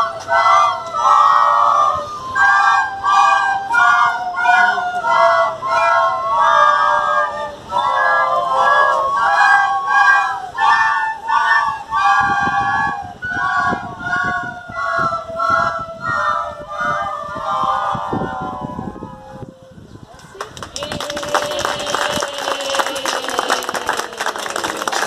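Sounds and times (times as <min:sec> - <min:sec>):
children playing recorders: 0:00.0 - 0:25.0.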